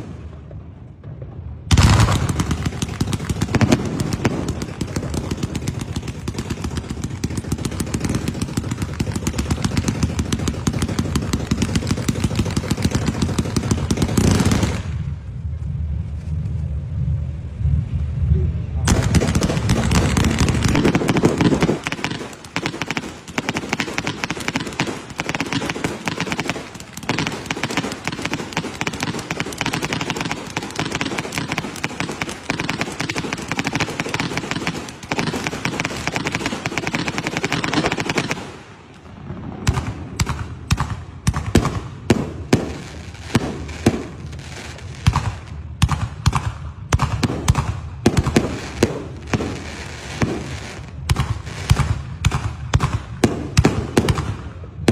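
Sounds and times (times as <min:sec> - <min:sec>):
deep firework boom: 0:00.0 - 0:10.6, 0:12.9 - 0:22.3, 0:39.1 - 0:42.8
fireworks crackling: 0:00.0 - 0:54.9
firework shells bursting: 0:01.7 - 0:15.0, 0:18.9 - 0:52.0.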